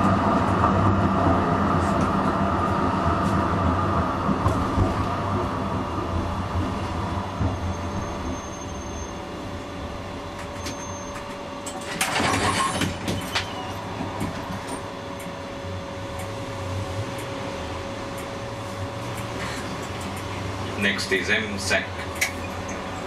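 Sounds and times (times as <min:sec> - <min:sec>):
tram hum and whine: 0:00.0 - 0:23.0.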